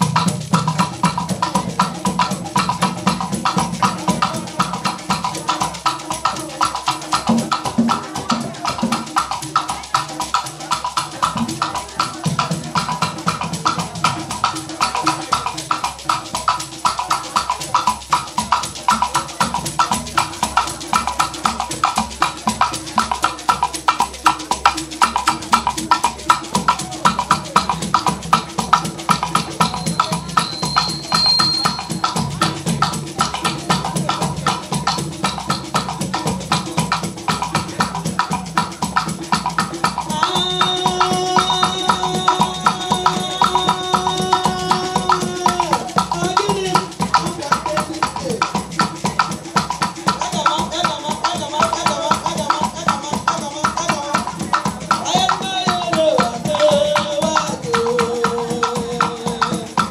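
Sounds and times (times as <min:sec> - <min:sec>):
gourd rattles shaking: 0:00.0 - 0:59.9
tall drum: 0:00.0 - 0:59.9
held pitched note: 0:30.4 - 0:32.0.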